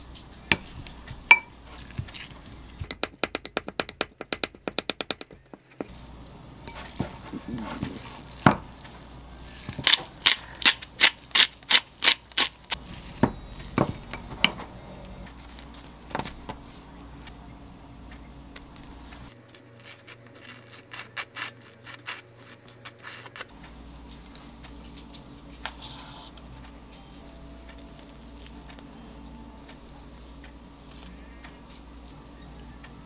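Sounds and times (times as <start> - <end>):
spoon scraping on toast: 25.6 - 26.5.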